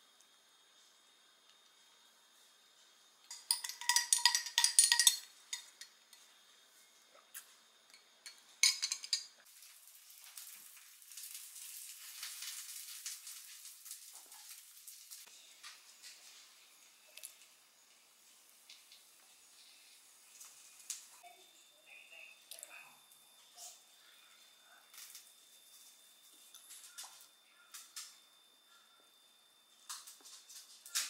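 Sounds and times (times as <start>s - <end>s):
ice and straw clinking in glass: 3.3s - 6.2s, 7.9s - 9.4s.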